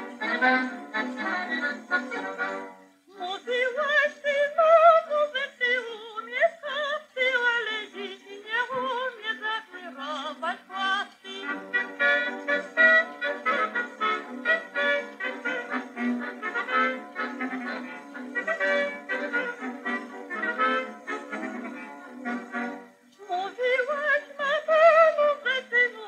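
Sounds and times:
instrumental accompaniment: 0.0s - 3.2s, 7.8s - 25.4s
high voice singing with vibrato: 0.0s - 26.0s.

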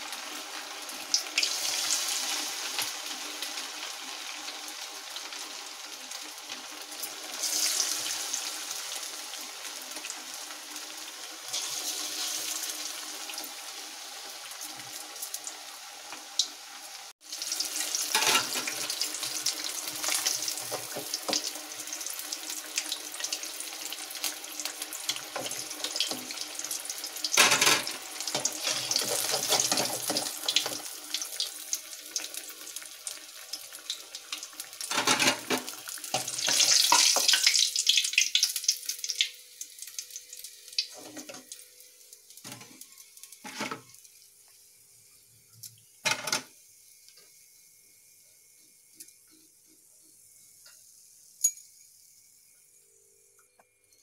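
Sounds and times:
fish deep-frying in oil: 0.0s - 52.6s
utensils knocking and clinking: 27.4s - 28.0s.

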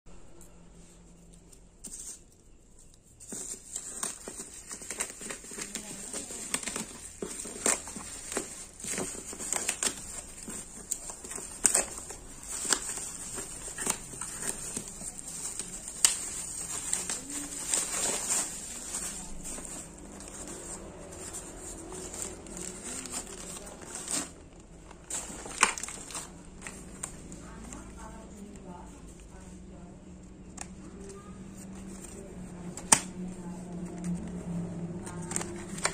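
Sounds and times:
plastic packaging crinkling: 1.5s - 28.4s, 30.9s - 35.9s
packaging tearing: 3.3s - 27.2s, 35.0s - 35.9s.

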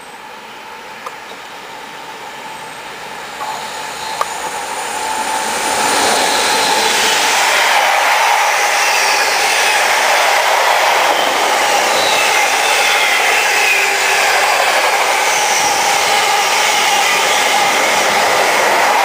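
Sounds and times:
freight train wheels rushing on rail: 0.0s - 19.0s
faint whistling tones: 8.2s - 16.2s.

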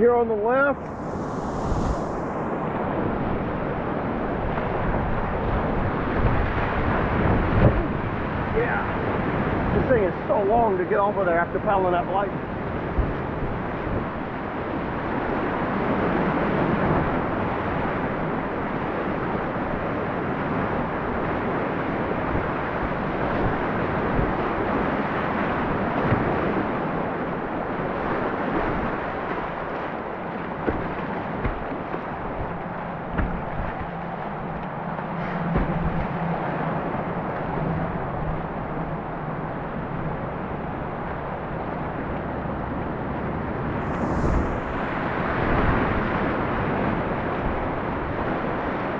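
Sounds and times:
paddle knocks and splashes: 6.1s - 8.2s, 12.8s - 14.1s, 25.4s - 39.0s.

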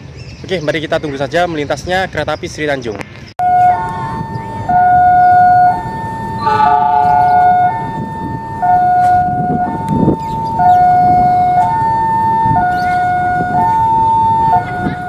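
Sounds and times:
two-tone level crossing alarm: 3.4s - 15.0s.

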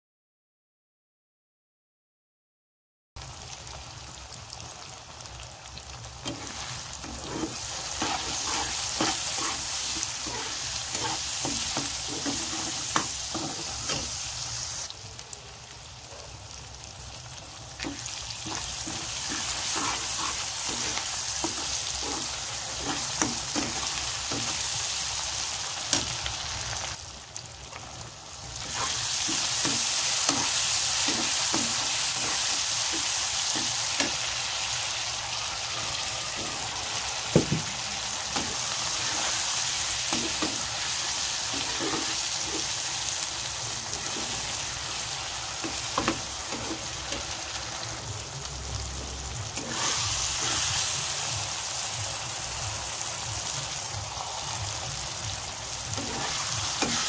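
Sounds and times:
onions sizzling in hot oil: 3.2s - 57.0s
spatula scraping a pan: 6.2s - 14.3s, 17.8s - 25.0s, 28.6s - 34.2s, 38.4s - 42.9s, 43.8s - 44.7s, 45.6s - 47.4s, 49.6s - 50.9s, 56.0s - 57.0s.

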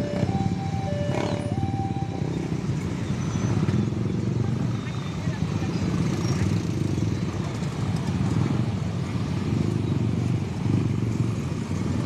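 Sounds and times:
motorcycle engines idling: 0.0s - 12.0s.

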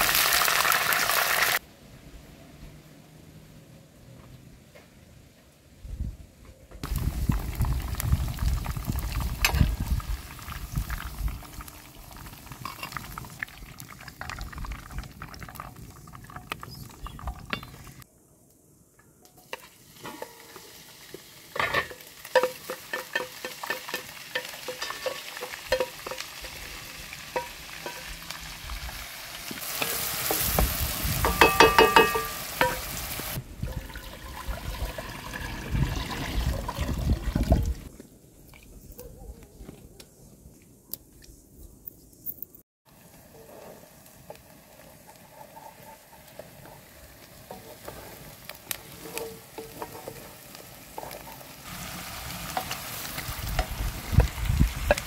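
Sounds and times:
peppers frying in oil: 0.0s - 1.6s, 6.8s - 18.0s, 19.4s - 36.4s, 42.9s - 55.0s
water pouring into metal pot: 6.8s - 18.0s, 29.6s - 37.8s
utensils and dishes clinking: 21.6s - 28.2s, 31.2s - 32.9s
wooden spatula stirring: 44.7s - 51.5s.

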